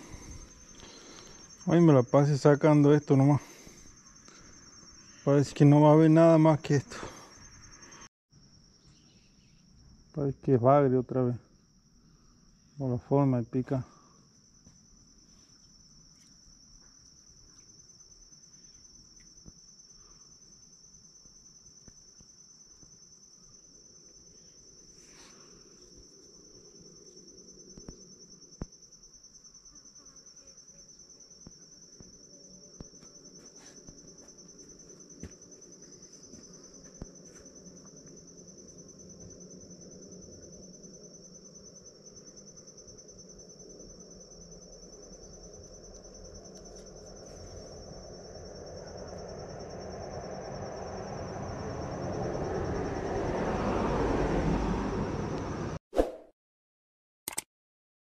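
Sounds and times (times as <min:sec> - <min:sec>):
insect trilling: 0:00.0 - 0:08.1.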